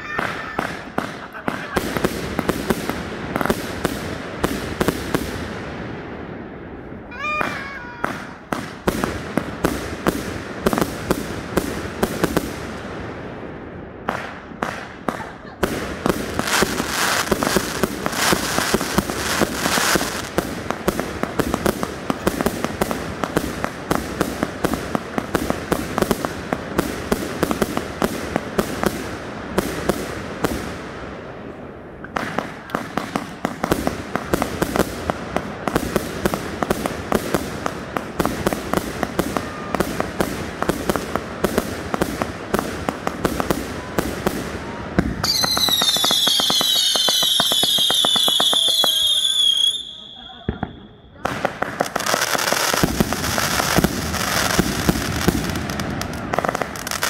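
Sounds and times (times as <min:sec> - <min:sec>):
whistling fireworks shrieking: 0:00.0 - 0:05.6, 0:06.9 - 0:12.6, 0:14.0 - 0:29.9, 0:35.6 - 0:57.0
fireworks bursting bangs: 0:00.0 - 0:57.0.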